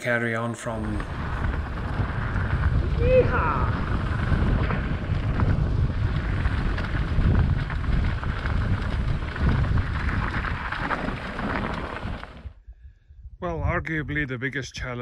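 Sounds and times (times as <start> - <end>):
bike tyres clicking and rattling: 0.6 - 12.6
wind buffeting microphone: 0.6 - 15.0.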